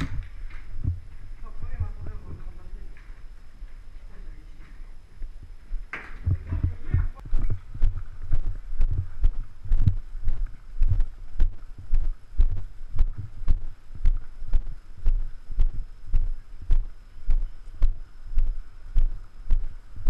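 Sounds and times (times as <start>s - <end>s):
footsteps with dull thuds: 0.0s - 20.0s.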